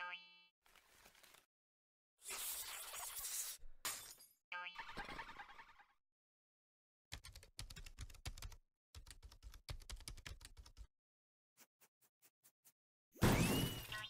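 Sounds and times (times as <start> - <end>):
typing on computer keyboard: 7.1 - 10.9.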